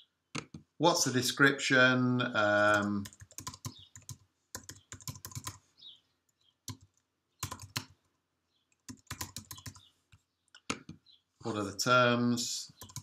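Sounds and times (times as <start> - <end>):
computer keyboard typing: 2.6 - 5.6, 6.7 - 8.0, 8.7 - 9.9, 12.8 - 13.0.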